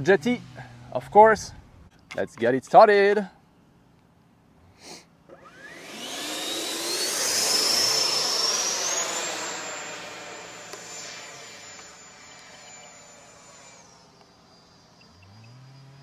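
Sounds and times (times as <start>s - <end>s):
electric ducted fan whine: 5.3s - 15.0s.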